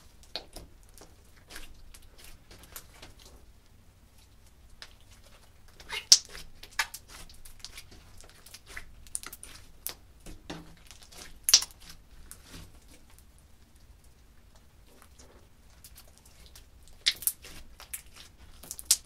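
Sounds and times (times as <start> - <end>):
slime squeezed with sticky pops: 10.8 - 12.0, 16.6 - 19.0.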